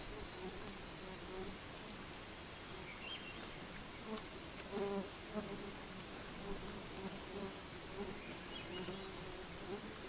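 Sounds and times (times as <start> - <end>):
flying insects buzzing: 0.0 - 10.0
steady background hiss: 0.0 - 10.0
faint clicks: 8.7 - 9.0.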